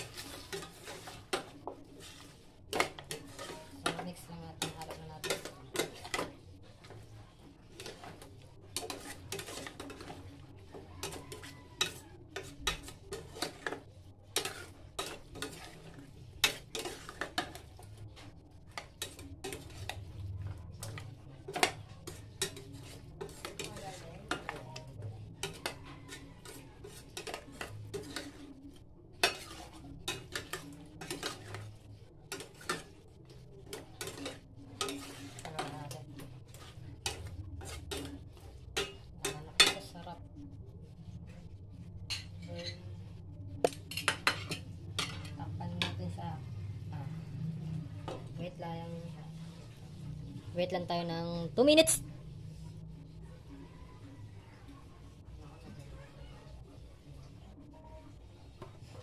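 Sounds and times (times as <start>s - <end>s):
spatula scraping metal pot: 0.0s - 7.0s, 7.6s - 39.9s.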